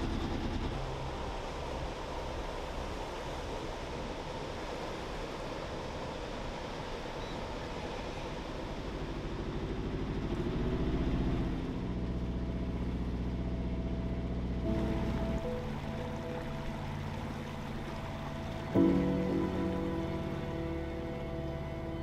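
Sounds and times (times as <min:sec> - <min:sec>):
boat engine drone: 0:00.0 - 0:22.0
rushing water: 0:00.0 - 0:22.0
sustained music tones: 0:10.2 - 0:22.0.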